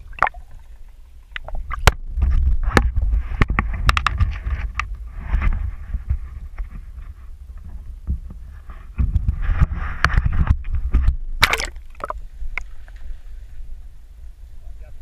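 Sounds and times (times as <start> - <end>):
splash into water: 11.4 - 12.2.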